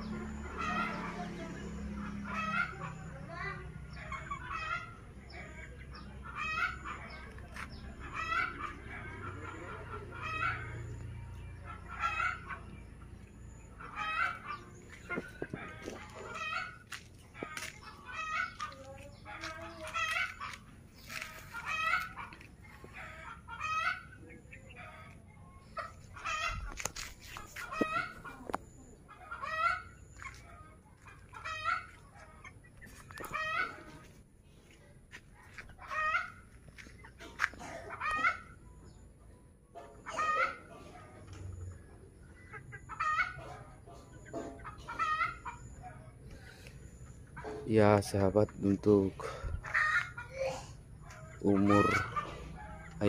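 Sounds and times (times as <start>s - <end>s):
chickens clucking: 0.0s - 53.0s.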